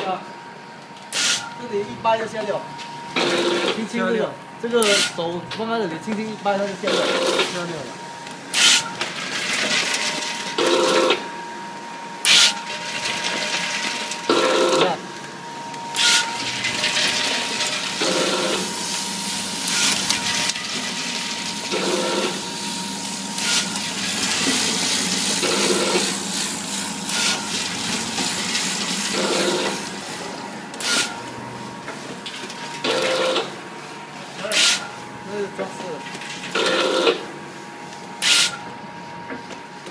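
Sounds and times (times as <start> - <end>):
packing machine sharp clack: 4.8 - 5.2, 12.3 - 14.9, 34.4 - 34.9, 38.2 - 38.6.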